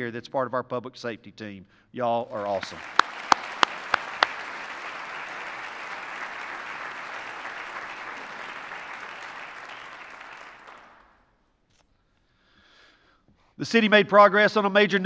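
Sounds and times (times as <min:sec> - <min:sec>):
audience applauding: 0:02.3 - 0:11.2
sharp clap close to microphone: 0:02.3 - 0:11.2.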